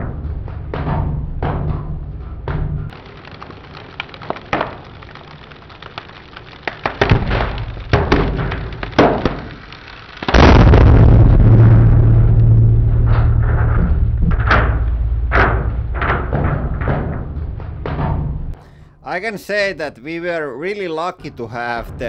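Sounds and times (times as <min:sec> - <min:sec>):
frozen paper cracking: 0:02.9 - 0:11.1
loud sudden blast: 0:10.3 - 0:15.7.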